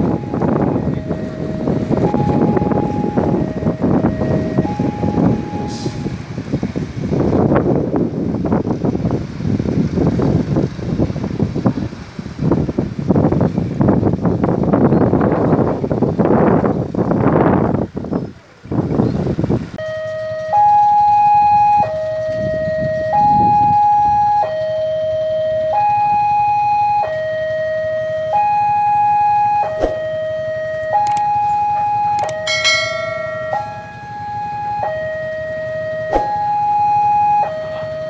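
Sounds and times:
two-tone crossing alarm: 0.0 - 6.2, 19.8 - 38.0
wind noise on microphone: 0.0 - 38.0.

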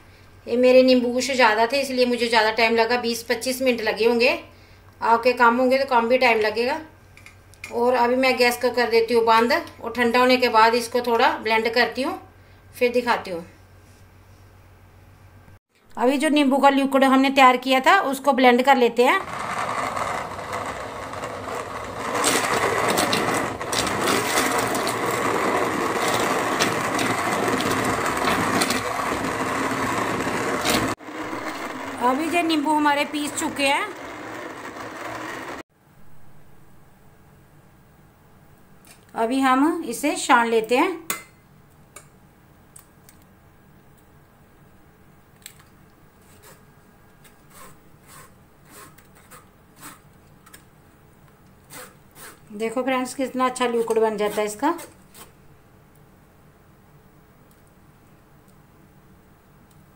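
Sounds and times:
blender blade knocking: 19.2 - 35.6
electric hand blender running: 19.2 - 35.6.

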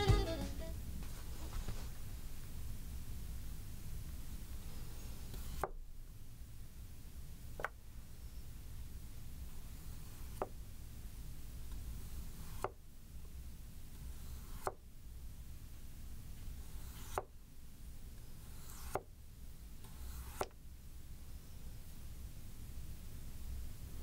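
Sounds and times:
knife slicing potato: 12.2 - 12.8, 14.1 - 14.8, 16.7 - 17.3, 18.5 - 19.1, 19.9 - 20.6.

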